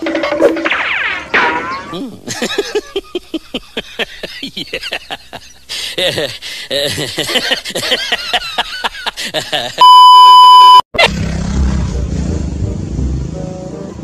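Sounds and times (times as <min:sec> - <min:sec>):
censor beep: 0:09.8 - 0:10.9.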